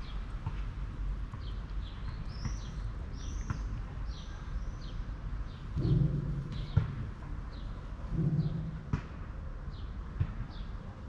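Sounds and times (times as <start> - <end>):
small birds chirping: 1.3 - 8.7.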